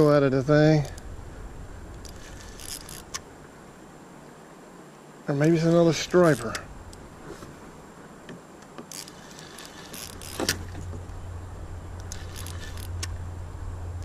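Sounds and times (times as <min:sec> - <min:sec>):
fishing reel clicks: 0:01.9 - 0:03.2, 0:06.1 - 0:07.0, 0:08.9 - 0:10.6, 0:12.0 - 0:13.2
fishing reel whirring: 0:01.9 - 0:03.2, 0:08.9 - 0:10.8, 0:12.0 - 0:13.2.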